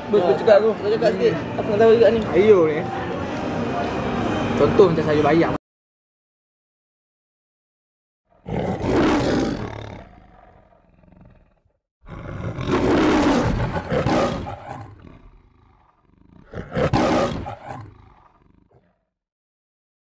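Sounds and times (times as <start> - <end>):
loud roars: 8.4 - 10.9, 12.1 - 18.8.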